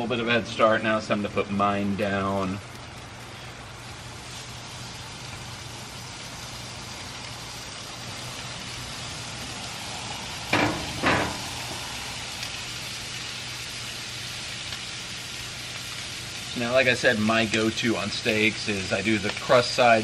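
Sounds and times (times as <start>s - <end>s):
steak sizzling on griddle: 0.0s - 20.0s.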